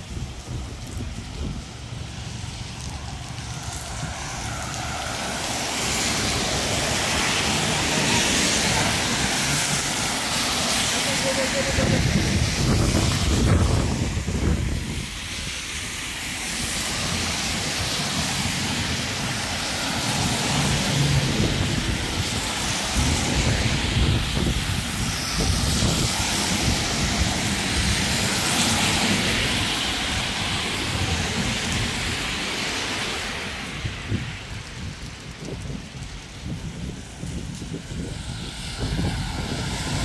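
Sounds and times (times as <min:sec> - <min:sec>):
rain and tyres on wet street: 0:00.0 - 0:40.0
wind rumble on microphone: 0:00.0 - 0:40.0.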